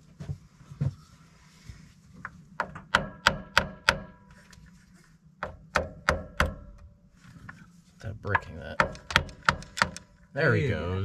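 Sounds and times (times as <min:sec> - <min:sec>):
hammer tapping on metal: 0:02.6 - 0:04.2, 0:05.4 - 0:06.7, 0:08.3 - 0:10.0
dull hammer knock: 0:05.4 - 0:06.6.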